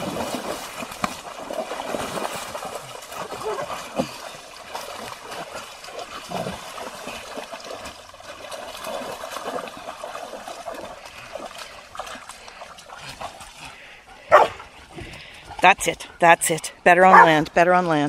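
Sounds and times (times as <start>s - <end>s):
dogs splashing in water: 0.0s - 16.3s
running creek water: 0.0s - 18.0s.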